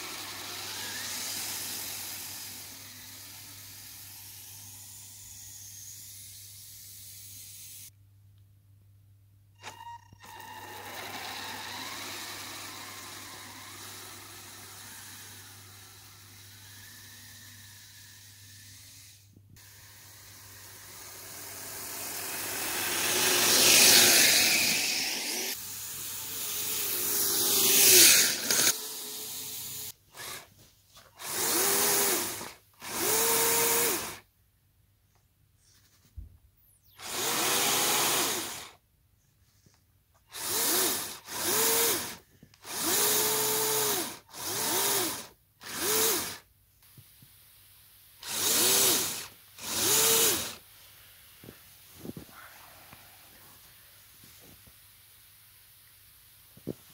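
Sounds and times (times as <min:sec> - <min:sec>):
electric motors and gears whining: 0:00.0 - 0:07.9, 0:09.6 - 0:30.5, 0:31.1 - 0:34.3, 0:36.8 - 0:38.8, 0:40.3 - 0:46.5, 0:48.2 - 0:50.6.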